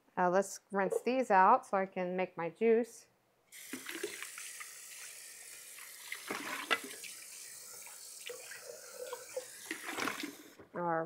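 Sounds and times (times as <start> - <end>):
tap running into sink: 6.1 - 7.1.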